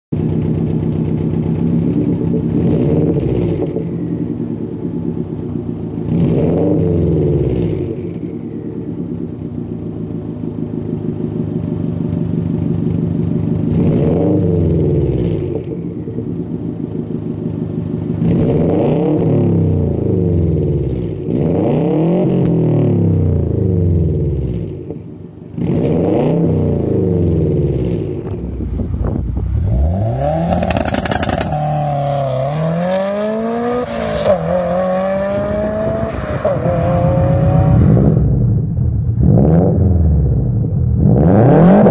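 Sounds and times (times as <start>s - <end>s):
car engine revving: 0.2s - 41.9s
car accelerating hard: 25.6s - 41.9s.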